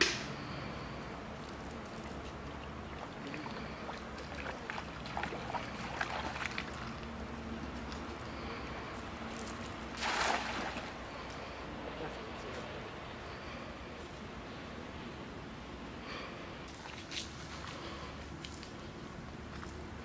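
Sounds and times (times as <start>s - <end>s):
wading through shallow water: 0.4s - 11.8s, 16.2s - 20.0s
cast net splashing on water: 2.9s - 7.0s, 9.6s - 11.0s.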